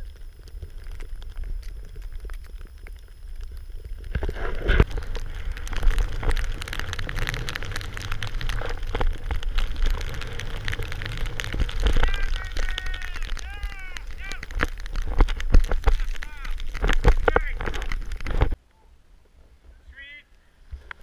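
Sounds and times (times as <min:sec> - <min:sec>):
thumps: 0:00.0 - 0:18.6
wind rumbling on microphone: 0:00.0 - 0:18.6
snow spraying against camera: 0:03.6 - 0:18.6.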